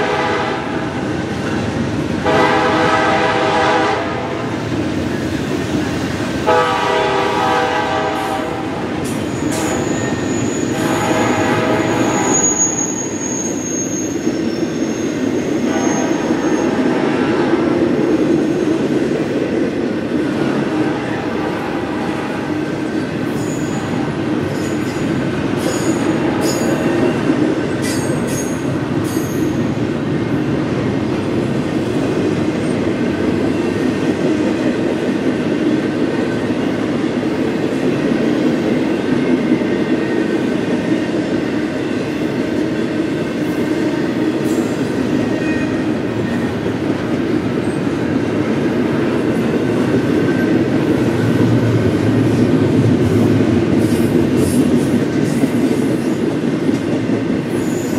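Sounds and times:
train wheels rumbling on rails: 0:00.0 - 0:57.9
wheel squeals and clicks: 0:11.9 - 0:16.7.

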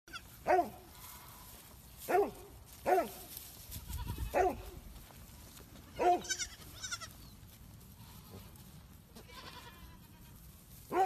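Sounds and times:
baby goat bleating: 0:00.1 - 0:00.3, 0:03.8 - 0:04.4, 0:06.0 - 0:07.2, 0:09.1 - 0:10.4.

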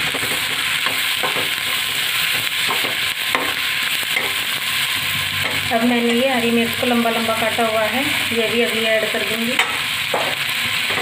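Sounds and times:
food sizzling in hot oil: 0:00.0 - 0:11.0
metal spoon scraping a pan: 0:09.5 - 0:11.0.

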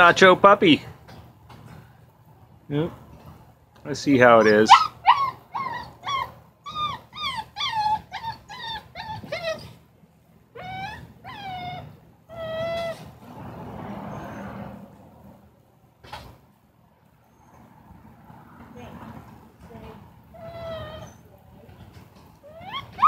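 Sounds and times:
puppy whining: 0:04.4 - 0:09.8, 0:10.5 - 0:13.2, 0:14.1 - 0:14.6, 0:20.3 - 0:21.4, 0:22.3 - 0:23.0.

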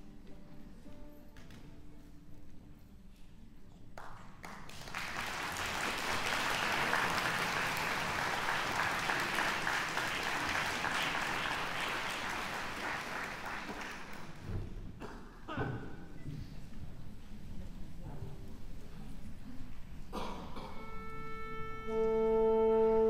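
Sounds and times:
audience applauding: 0:04.0 - 0:14.4.

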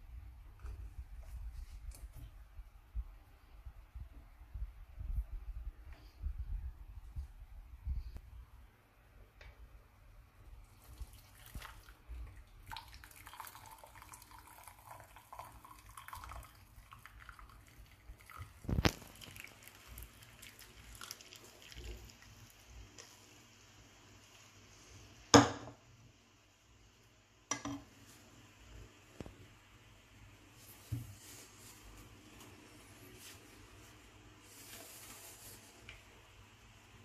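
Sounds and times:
liquid trickling through strainer: 0:10.7 - 0:22.6.

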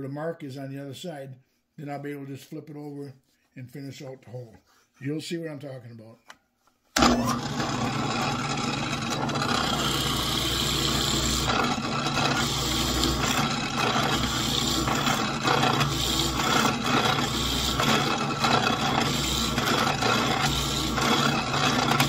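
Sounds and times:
drill bit cutting wood: 0:07.0 - 0:22.0
drill press motor hum: 0:07.0 - 0:22.0.

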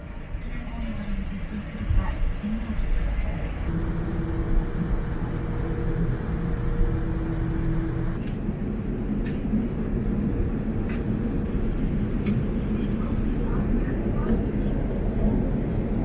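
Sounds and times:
airliner cabin rumble: 0:00.0 - 0:16.0
steady hum: 0:03.4 - 0:08.2.

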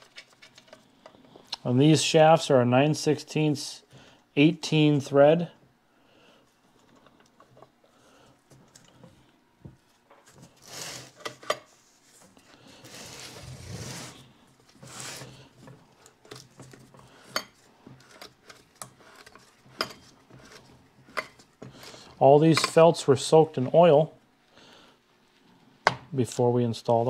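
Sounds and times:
metal parts rubbing and sliding: 0:12.8 - 0:15.4.

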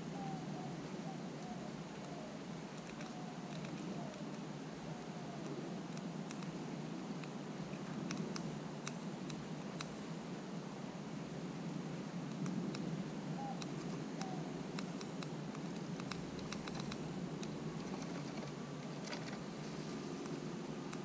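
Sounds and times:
background hiss: 0:00.0 - 0:21.0
squirrel gnawing clicks: 0:02.0 - 0:04.4, 0:05.4 - 0:06.6, 0:08.0 - 0:10.0, 0:13.6 - 0:17.6.

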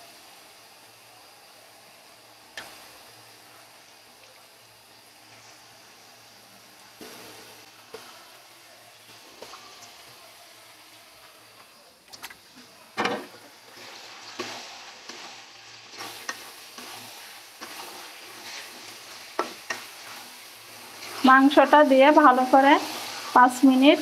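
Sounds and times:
chicken sizzling in hot oil: 0:00.0 - 0:24.0.

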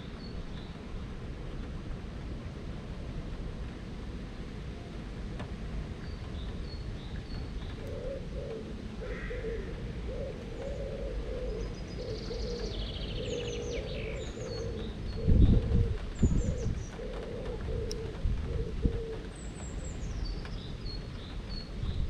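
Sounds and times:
low background rumble: 0:00.0 - 0:22.0
birds calling: 0:06.0 - 0:22.0.

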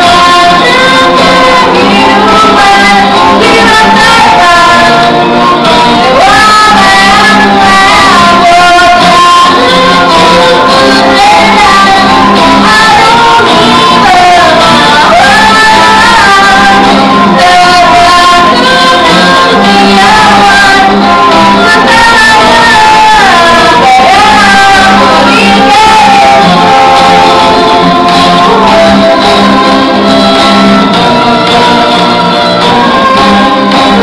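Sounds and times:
acoustic guitar chords: 0:00.0 - 0:34.0
violin melody: 0:00.0 - 0:34.0.

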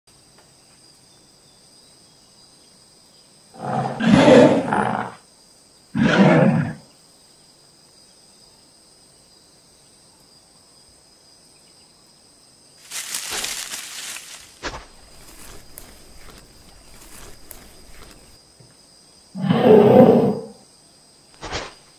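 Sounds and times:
dinosaur growling roars: 0:03.6 - 0:05.2, 0:06.0 - 0:06.8, 0:19.4 - 0:20.6
harsh hissing call: 0:03.6 - 0:05.2, 0:06.0 - 0:06.8.

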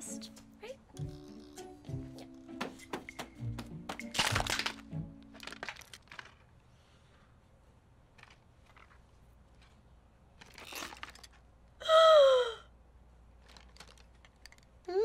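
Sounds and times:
plastic case clicks and rustle: 0:04.0 - 0:06.5, 0:13.4 - 0:14.7
woman whimpering: 0:11.8 - 0:12.6.

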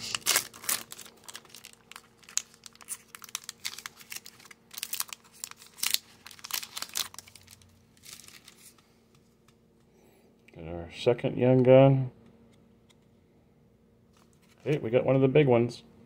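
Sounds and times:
foil wrapper crinkling and tearing: 0:00.0 - 0:08.8.

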